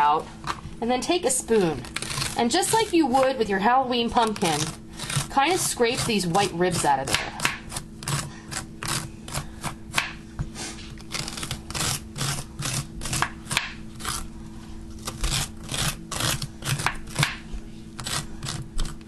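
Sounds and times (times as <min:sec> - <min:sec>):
faint steady hum: 0:00.0 - 0:19.0
metal spoon scraping pepper: 0:01.4 - 0:03.3, 0:04.1 - 0:09.8, 0:11.0 - 0:14.3, 0:15.0 - 0:17.2, 0:18.0 - 0:19.0.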